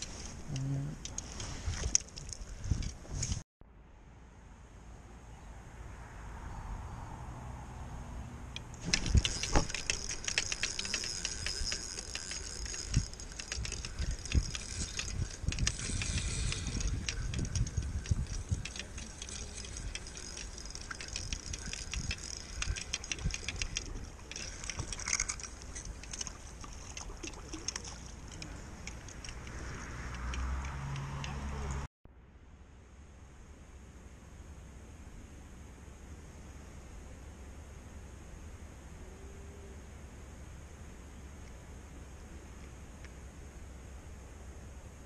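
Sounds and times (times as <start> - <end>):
fishing reel clicking whir: 8.7 - 31.9.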